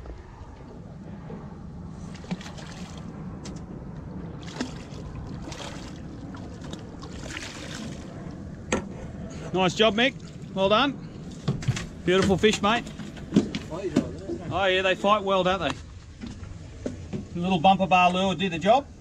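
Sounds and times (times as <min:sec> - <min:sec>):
fish splashing at surface: 0:04.4 - 0:08.2.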